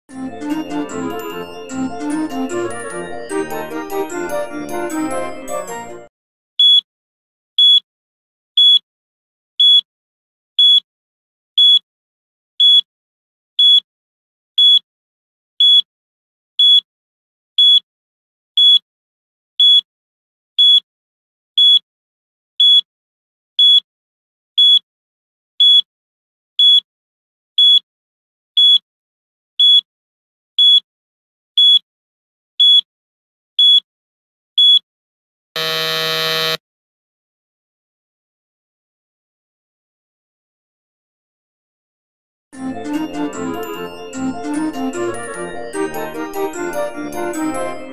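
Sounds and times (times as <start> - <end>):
high-pitched timer beeps: 6.6 - 6.8, 7.6 - 7.8, 8.6 - 8.8, 9.6 - 9.8, 10.6 - 10.8, 11.6 - 11.8, 13.6 - 13.8, 14.6 - 14.8, 21.6 - 21.8, 24.6 - 24.8, 31.6 - 31.8, 33.6 - 33.8.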